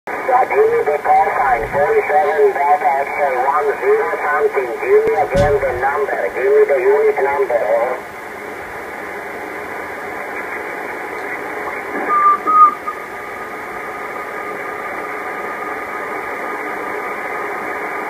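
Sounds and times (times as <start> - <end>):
wavering whistle tone: 12.0 - 13.0.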